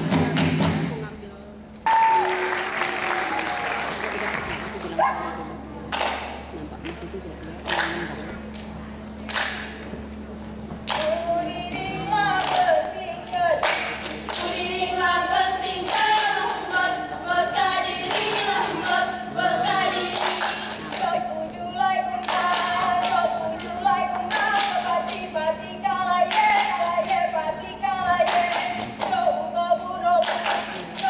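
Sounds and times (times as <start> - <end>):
sharp hand clapping: 1.9 - 5.0, 5.9 - 7.0, 7.6 - 9.8, 10.8 - 11.2, 12.4 - 12.7, 13.6 - 14.6, 28.3 - 29.2, 30.2 - 31.0
girls singing in unison: 11.0 - 31.0.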